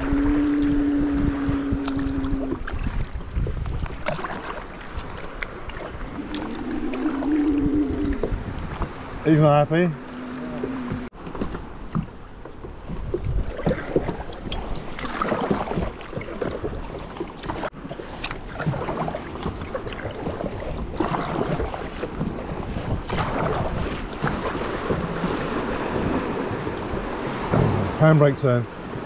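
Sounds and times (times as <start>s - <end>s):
wind buffeting microphone: 0.0s - 4.2s, 4.9s - 16.9s
water splashing around kayak: 0.0s - 29.0s.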